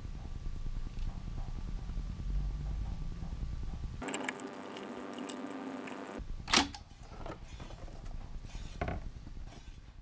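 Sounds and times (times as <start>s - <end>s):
tape deck hum: 4.0s - 6.7s.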